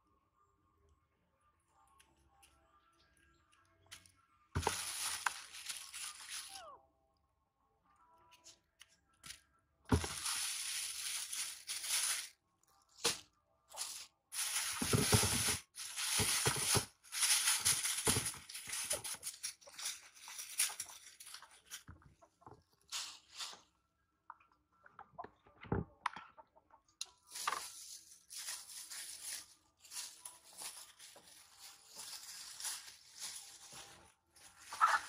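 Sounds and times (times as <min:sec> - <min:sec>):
plastic bag crinkling: 0:04.6 - 0:06.6, 0:09.9 - 0:12.4, 0:13.0 - 0:21.9, 0:27.3 - 0:35.0.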